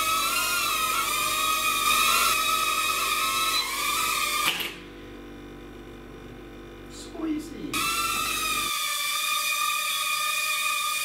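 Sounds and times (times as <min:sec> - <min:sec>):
small electric motors whining: 0:00.0 - 0:04.9, 0:07.7 - 0:11.0.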